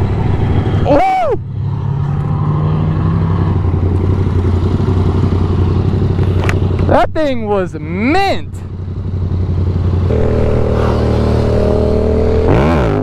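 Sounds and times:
motorcycle engine running: 3.2s - 13.0s.

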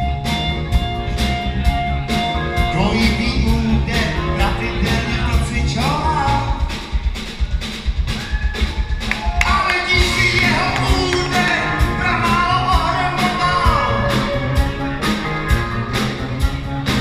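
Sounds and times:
drum beat: 0.0s - 17.0s
live band playing upbeat music: 0.0s - 17.0s
person singing: 2.5s - 6.8s, 9.4s - 15.6s.

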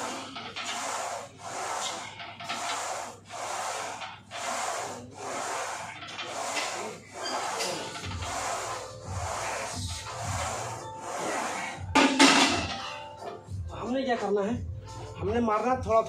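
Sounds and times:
hard rhythmic breathing: 0.0s - 13.8s
bass beat music: 13.4s - 16.0s.

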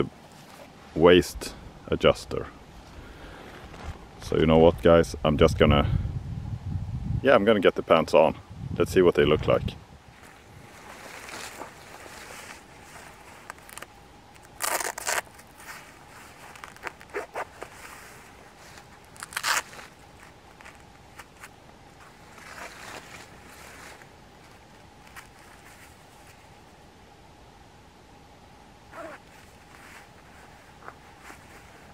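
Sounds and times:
fabric rustling and scraping: 10.1s - 26.7s, 28.9s - 31.9s.

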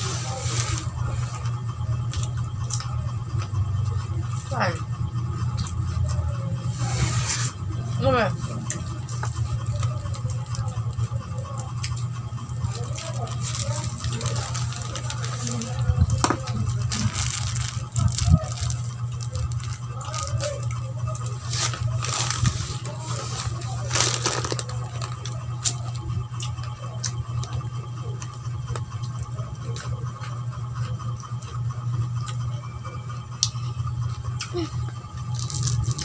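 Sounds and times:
steady low hum: 0.0s - 36.0s
chewing cucumber crunching: 8.6s - 32.6s.

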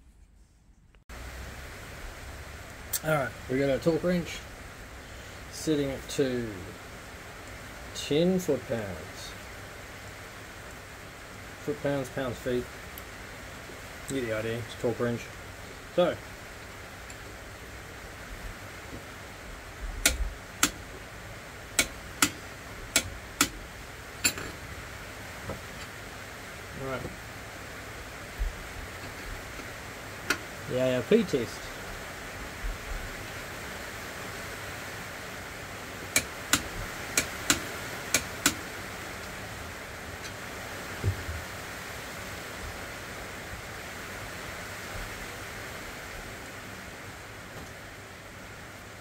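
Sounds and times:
sharp metallic tool clicks: 20.0s - 20.8s, 21.8s - 23.6s, 36.1s - 38.6s.

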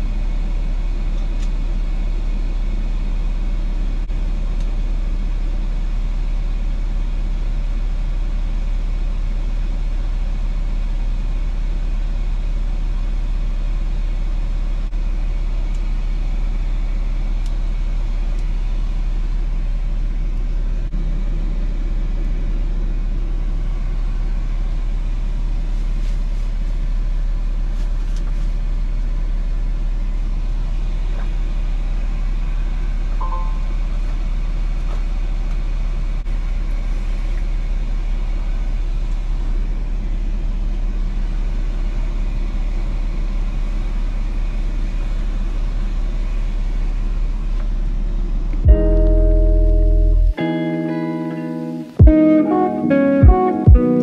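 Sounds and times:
truck engine rumbling: 46.1s - 50.4s.

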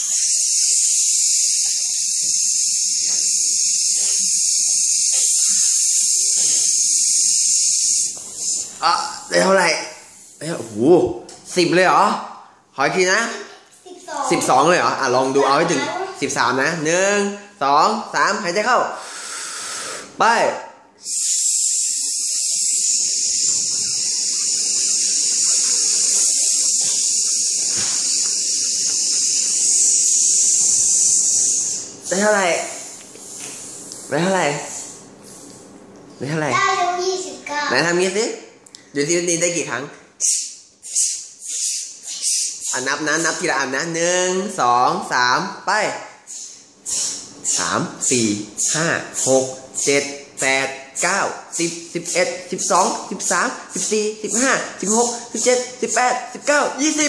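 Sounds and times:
long hissing exhale: 0.0s - 7.8s, 19.0s - 20.2s, 21.0s - 31.9s, 32.7s - 35.6s, 46.3s - 48.2s.

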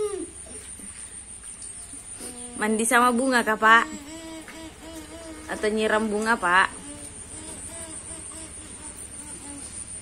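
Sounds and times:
high-pitched whine: 0.0s - 10.0s
rain falling: 2.9s - 10.0s.

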